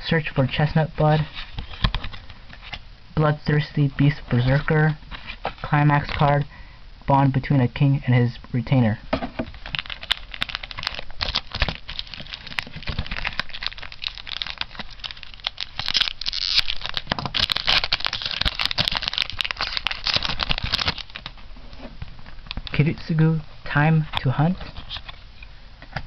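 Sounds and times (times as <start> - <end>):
foil wrapper crinkling: 9.5 - 21.5.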